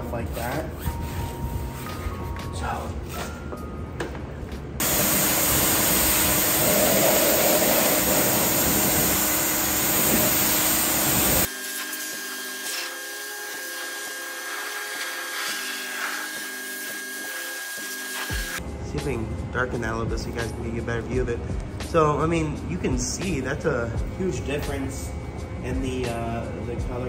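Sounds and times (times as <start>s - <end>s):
pressure washer spraying: 4.8s - 18.6s.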